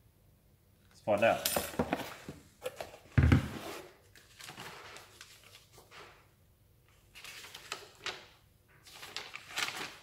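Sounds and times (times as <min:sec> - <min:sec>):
paper and cardboard rustling: 0:01.6 - 0:06.3, 0:06.9 - 0:10.0.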